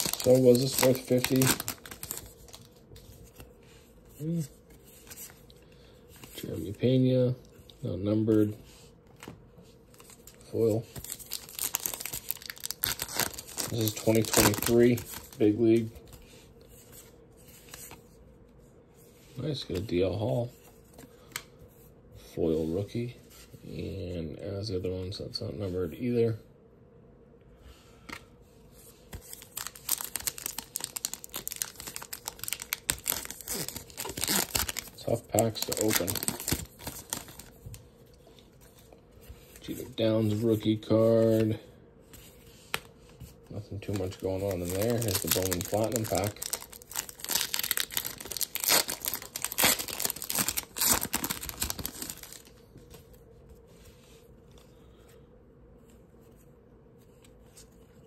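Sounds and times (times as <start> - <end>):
foil wrapper crinkling and tearing: 0.0 - 2.8, 10.0 - 15.6, 29.2 - 37.6, 43.8 - 52.5
faint rustles of cards: 0.0 - 26.4, 27.5 - 58.0.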